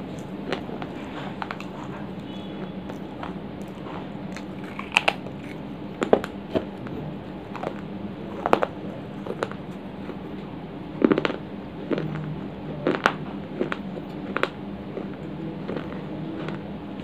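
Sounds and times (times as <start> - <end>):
clay crunching in mouth: 0.1 - 10.3, 11.0 - 16.6.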